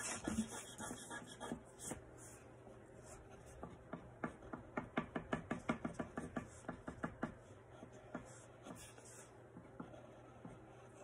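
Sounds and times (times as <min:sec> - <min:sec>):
pen tapping on paper: 0:03.6 - 0:07.4.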